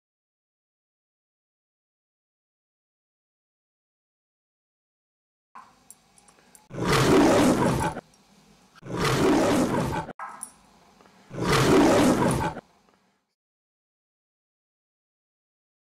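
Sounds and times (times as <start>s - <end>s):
loud animal roars: 6.7s - 8.0s, 8.8s - 10.2s, 11.3s - 12.7s.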